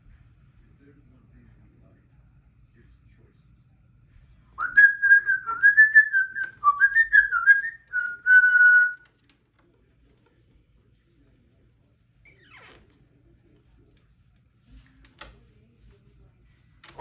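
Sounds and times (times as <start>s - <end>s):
parrot whistling a tune: 4.6s - 9.0s.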